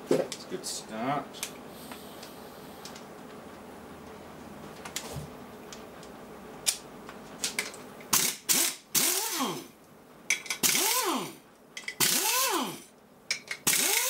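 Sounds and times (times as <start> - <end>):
pneumatic impact wrench rattling: 8.1 - 9.7, 10.4 - 12.9, 13.5 - 14.0.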